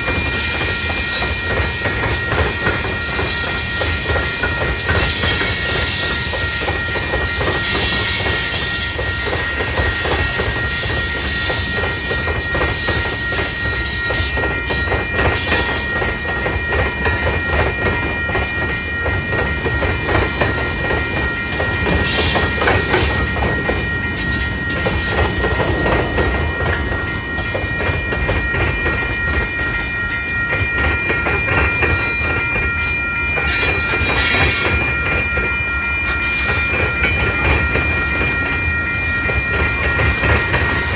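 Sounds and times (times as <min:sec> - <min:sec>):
high-pitched ringing tone: 0:00.0 - 0:40.9
train wheels rumbling on rails: 0:00.0 - 0:40.9.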